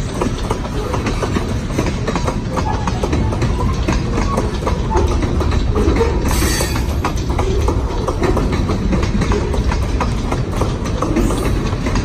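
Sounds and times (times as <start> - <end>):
freight train rumbling past: 0.0 - 12.0
wheels clicking over rail joints: 0.0 - 12.0.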